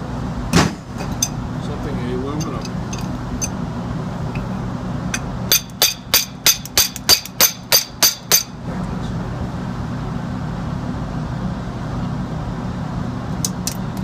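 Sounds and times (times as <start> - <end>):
tool striking metal plate: 5.2 - 8.6.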